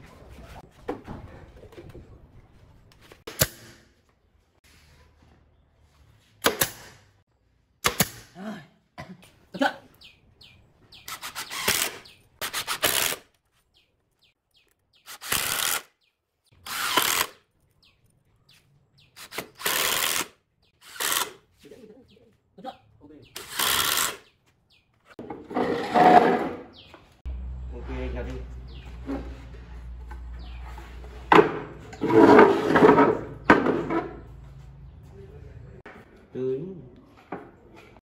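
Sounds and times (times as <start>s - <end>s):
nail gun shots: 3.3s - 3.8s, 6.4s - 7.1s, 7.8s - 8.4s
cordless drill drilling wood: 11.1s - 13.2s, 15.1s - 15.9s, 16.6s - 17.4s, 19.2s - 21.4s, 23.4s - 24.2s.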